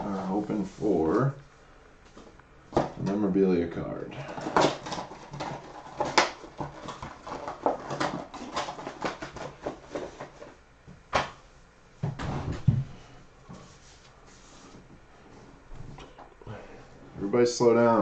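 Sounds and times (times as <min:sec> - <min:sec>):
packaging crinkling and clicking: 0:04.3 - 0:10.6.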